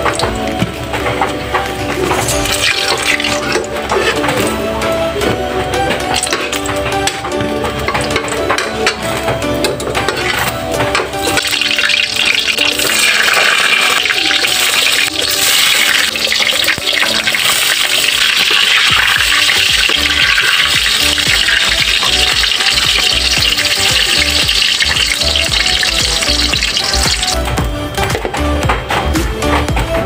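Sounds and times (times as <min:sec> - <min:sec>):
eggplant sizzling in oil: 0:11.2 - 0:27.4.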